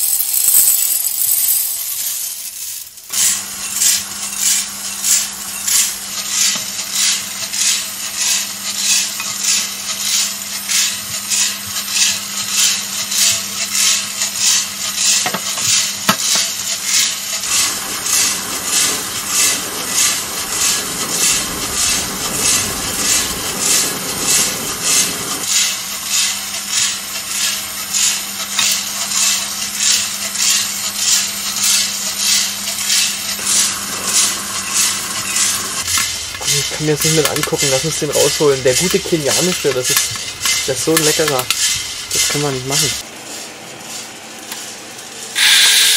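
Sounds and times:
coffee beans tumbling in drum: 0.0s - 45.9s
low hum: 17.5s - 25.4s.

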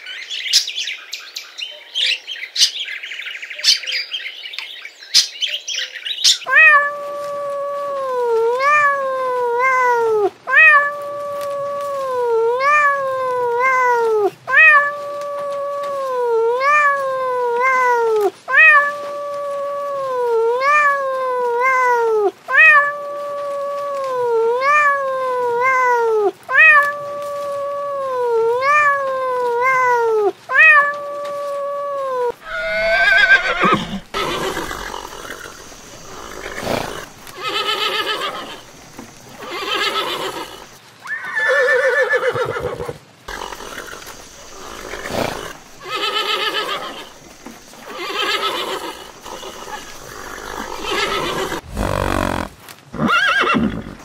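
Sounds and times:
kitten meowing: 6.5s - 35.0s
horses whinnying: 32.3s - 54.0s.

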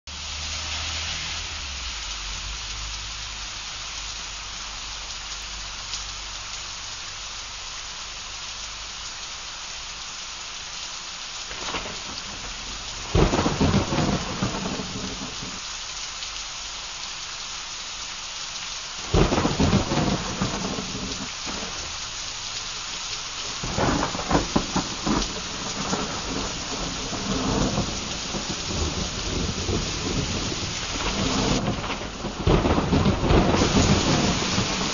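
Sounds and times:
heavy rain hissing: 0.1s - 34.9s
thunder cracks and rumbles: 11.5s - 15.6s, 19.1s - 21.9s, 23.5s - 34.9s.

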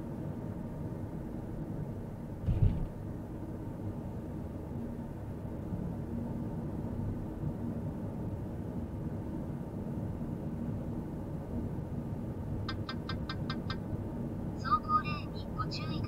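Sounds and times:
car driving rumble: 2.3s - 3.2s, 12.6s - 16.0s.

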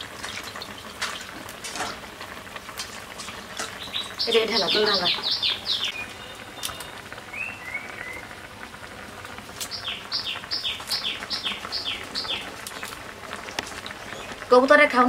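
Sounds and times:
faint hiss of cooking pots: 0.0s - 15.0s
bird chirps: 3.8s - 8.2s, 9.7s - 12.9s
songbird whistling: 3.8s - 8.3s, 9.7s - 12.4s.

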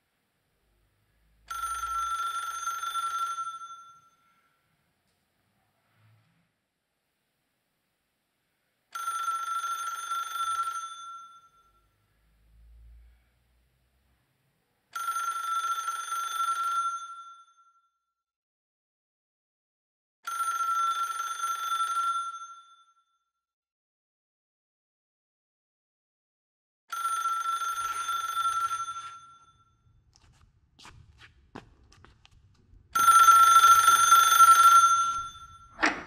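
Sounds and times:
telephone ringing: 1.5s - 4.3s, 8.9s - 11.7s, 15.0s - 17.6s, 20.3s - 22.8s, 26.9s - 29.7s, 33.0s - 36.0s.

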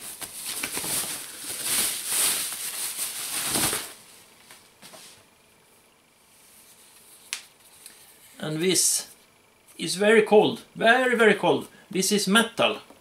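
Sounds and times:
plastic bag rustling and crinkling: 0.0s - 4.6s.

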